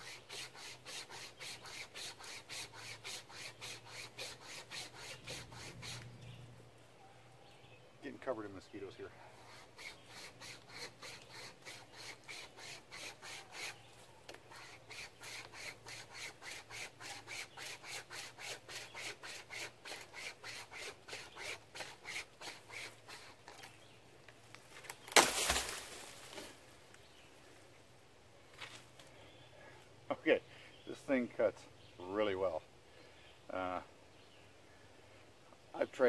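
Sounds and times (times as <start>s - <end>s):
wire saw rasping on wood: 0.0s - 6.2s, 9.3s - 23.4s
tree limb cracking and crashing: 24.6s - 26.6s.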